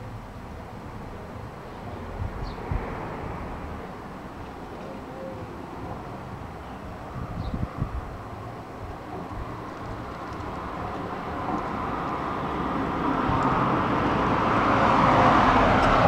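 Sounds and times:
electric wheelchair motor and tyres: 0:04.2 - 0:16.0.

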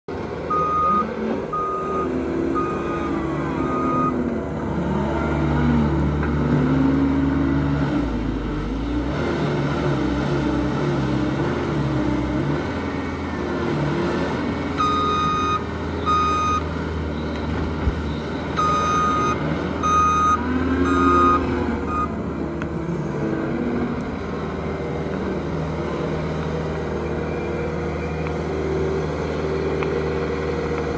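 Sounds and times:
diesel engine revving: 0:00.1 - 0:30.9
backup alarm beeping: 0:14.8 - 0:16.6, 0:18.6 - 0:22.1.

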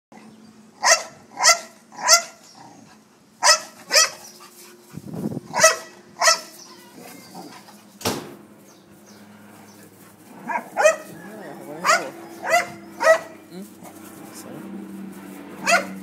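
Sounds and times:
dog barking: 0:00.8 - 0:02.4, 0:03.4 - 0:04.2, 0:05.6 - 0:06.5, 0:10.4 - 0:13.4, 0:15.6 - 0:16.0.

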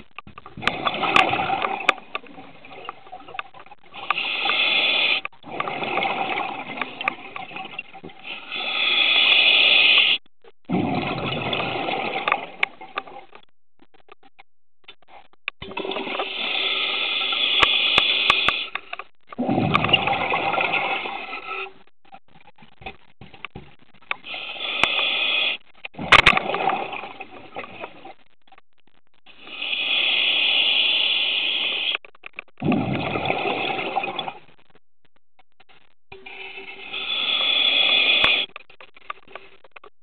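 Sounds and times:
exhaled bubbles rushing: 0:00.6 - 0:02.8, 0:05.4 - 0:07.8, 0:10.7 - 0:13.2, 0:19.4 - 0:21.5, 0:26.0 - 0:28.1, 0:32.6 - 0:34.4
hissing inhale through regulator: 0:04.0 - 0:05.3, 0:08.2 - 0:10.2, 0:16.1 - 0:18.9, 0:24.2 - 0:25.6, 0:29.3 - 0:32.0, 0:36.3 - 0:38.5.

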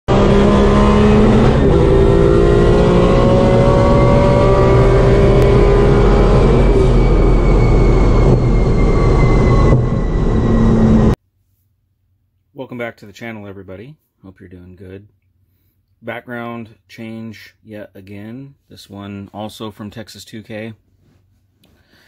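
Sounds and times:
loud wind and road noise: 0:00.1 - 0:11.2
race car engine under load: 0:00.1 - 0:11.2.

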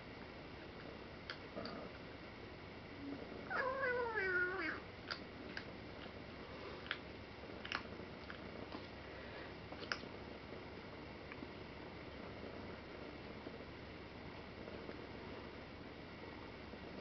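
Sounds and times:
cat meowing: 0:03.5 - 0:04.8
kitten crunching dry kibble: 0:06.8 - 0:09.0.

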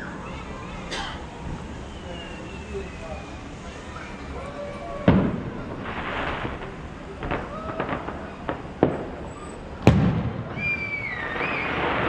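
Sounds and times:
faint crowd voices: 0:00.0 - 0:12.0
fireworks bangs: 0:03.6 - 0:12.0
fireworks pops and crackles: 0:05.0 - 0:12.0.

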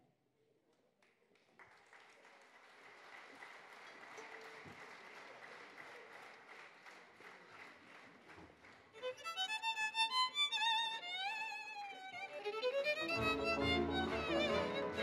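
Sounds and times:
audience applause: 0:01.3 - 0:09.3, 0:13.0 - 0:15.0.

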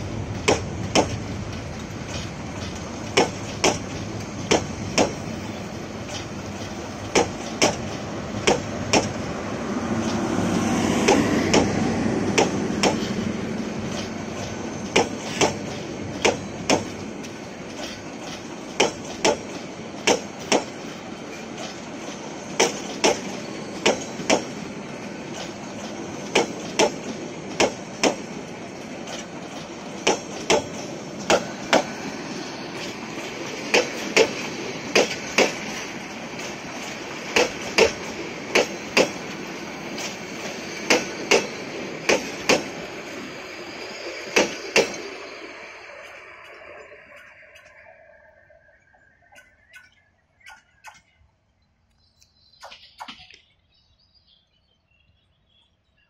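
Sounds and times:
train wheels clacking on rail joints: 0:00.0 - 0:43.2, 0:44.0 - 0:45.3
train rolling rumble: 0:00.0 - 0:51.6.

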